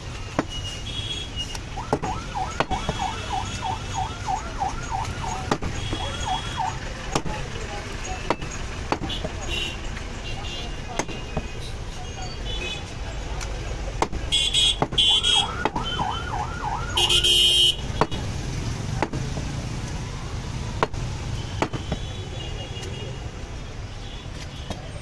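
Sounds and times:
warbling siren-like tone: 0:01.8 - 0:05.5
cleaver chopping meat on wood: 0:01.9 - 0:03.1, 0:05.0 - 0:06.0, 0:07.1 - 0:07.4, 0:08.3 - 0:09.4, 0:10.9 - 0:11.5, 0:13.9 - 0:15.9, 0:17.8 - 0:18.3, 0:18.9 - 0:19.6, 0:20.8 - 0:22.0
vehicle horn blaring: 0:17.0 - 0:17.9.

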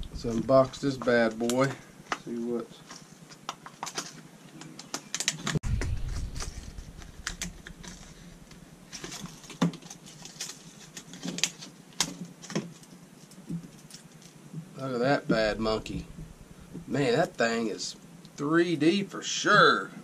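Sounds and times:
dull bump: 0:05.6 - 0:08.6
plastic packaging crackling: 0:06.1 - 0:14.2.

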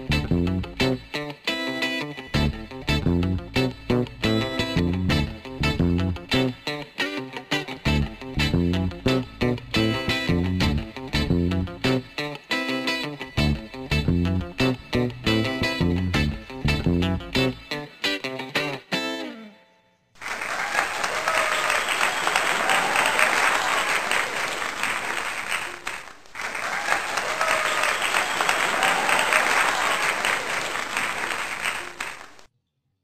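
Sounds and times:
plucked guitar tune: 0:00.0 - 0:19.8
crowd applauding: 0:20.2 - 0:32.5.

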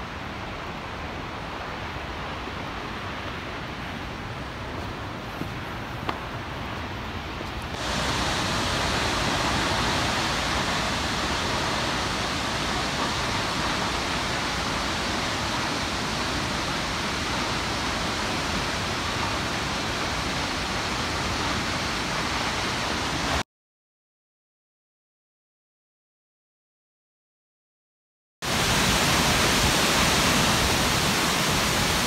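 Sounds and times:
waterfall rushing: 0:07.8 - 0:23.4, 0:28.5 - 0:32.0.

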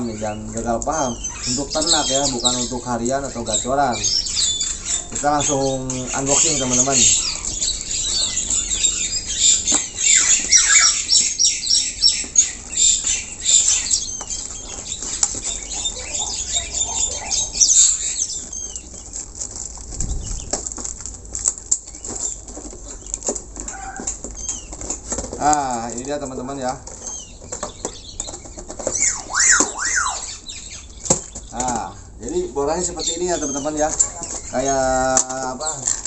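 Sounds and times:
cardboard rustling and scraping: 0:18.3 - 0:29.6.

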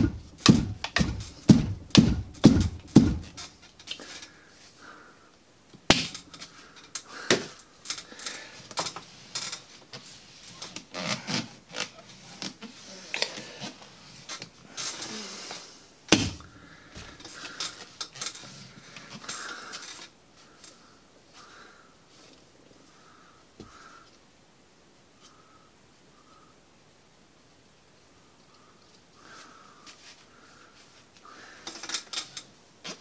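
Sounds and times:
mesh rustling: 0:00.0 - 0:04.8.

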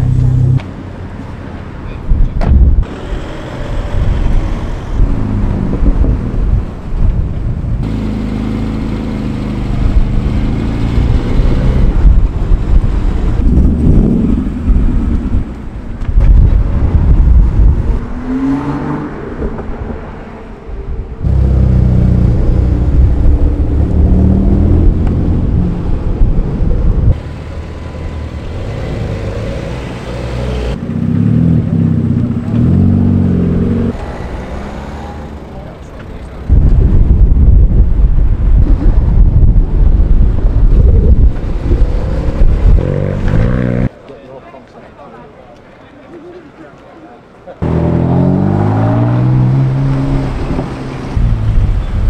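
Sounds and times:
cars driving past: 0:16.6 - 0:26.0, 0:27.2 - 0:36.6, 0:47.6 - 0:52.0
car engine revving: 0:21.2 - 0:25.8, 0:47.6 - 0:51.7.

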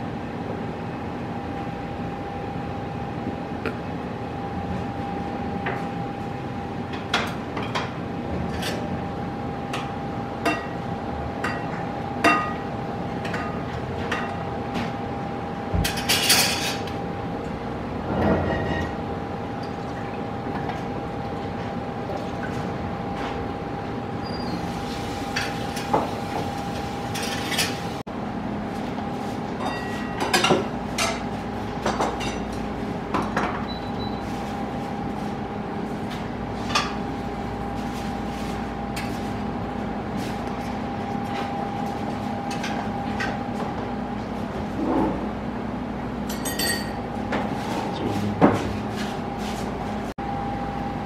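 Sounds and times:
steady background hum: 0:00.0 - 0:51.0
clinks of pots and utensils: 0:46.3 - 0:47.0.

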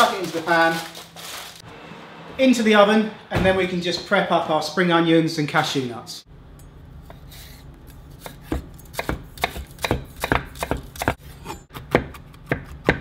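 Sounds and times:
knife chopping on wooden board: 0:08.2 - 0:13.0.

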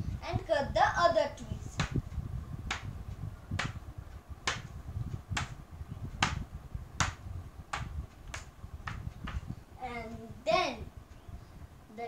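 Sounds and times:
paper axe tapping paper: 0:04.4 - 0:04.7.

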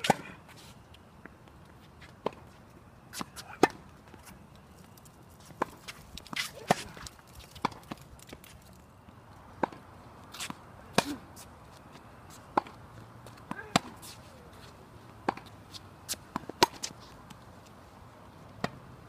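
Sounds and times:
tennis ball struck by racquet: 0:00.0 - 0:00.3, 0:03.1 - 0:03.8, 0:10.4 - 0:11.2, 0:12.5 - 0:12.8, 0:13.5 - 0:14.0, 0:15.2 - 0:15.5, 0:16.1 - 0:17.0
tennis ball bouncing on court: 0:09.6 - 0:09.8, 0:12.5 - 0:14.1, 0:15.2 - 0:15.5, 0:16.1 - 0:16.9, 0:18.6 - 0:18.9.

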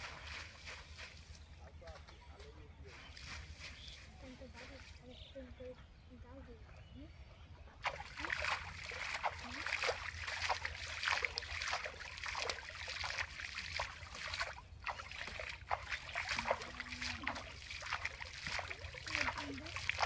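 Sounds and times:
hand splashing pond water: 0:07.8 - 0:20.0.

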